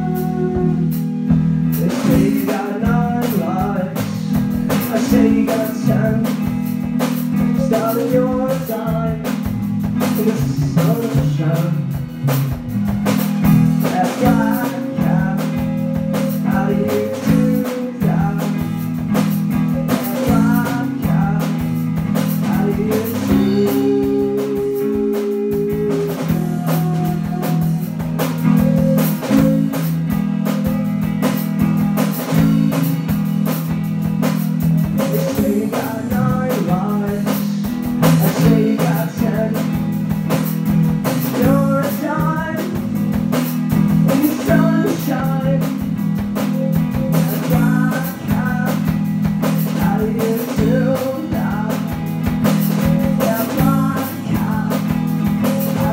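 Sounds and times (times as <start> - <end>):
drum kit beat: 0.0 - 55.9
electric guitars: 0.0 - 55.9.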